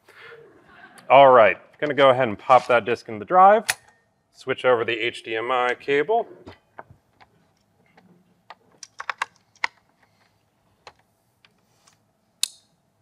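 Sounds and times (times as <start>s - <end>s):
computer hardware clicking: 8.8s - 9.9s.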